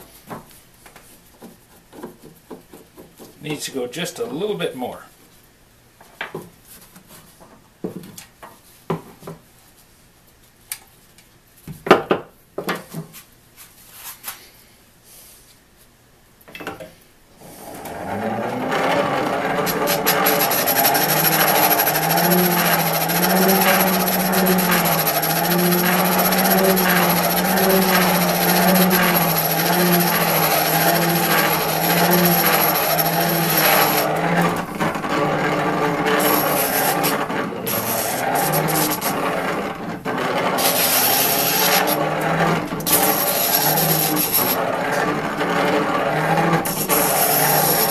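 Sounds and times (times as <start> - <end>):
hand-cranked grinder wheel whirring: 17.4 - 47.9
metal grinding against stone: 17.4 - 47.9.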